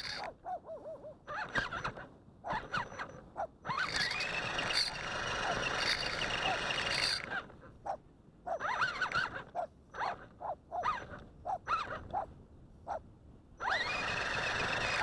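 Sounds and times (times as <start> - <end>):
toy car electric motor whining: 0.0 - 0.3, 1.3 - 7.5, 8.6 - 10.2, 13.6 - 15.0.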